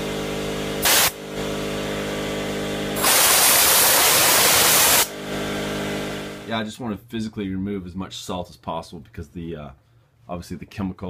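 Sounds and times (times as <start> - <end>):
shop vacuum humming: 0.0 - 6.6
air blow gun hissing: 0.8 - 1.2, 3.0 - 5.1.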